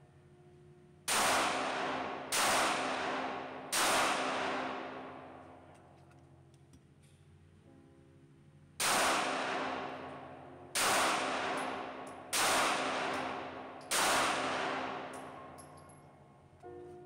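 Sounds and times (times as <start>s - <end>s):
pistol shots echoing: 1.1s - 5.7s, 8.8s - 15.8s
faint background music: 7.4s - 11.3s, 15.6s - 17.0s.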